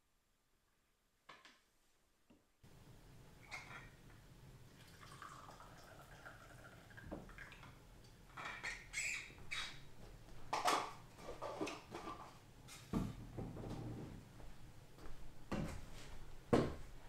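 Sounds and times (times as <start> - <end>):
cookware clattering and scraping: 3.4 - 4.0, 8.3 - 8.9, 10.5 - 12.4.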